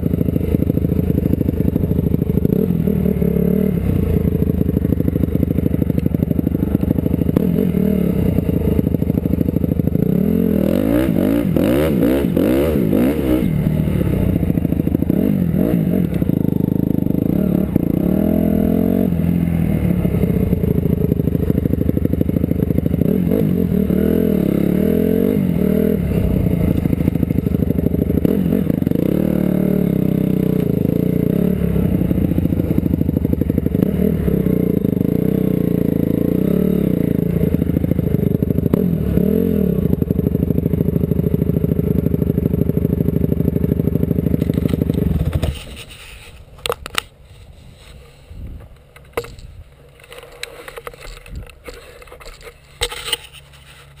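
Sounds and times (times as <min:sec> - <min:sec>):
dirt bike engine revving: 0:00.0 - 0:45.6
camera handling knocks and scrapes: 0:44.5 - 0:54.0.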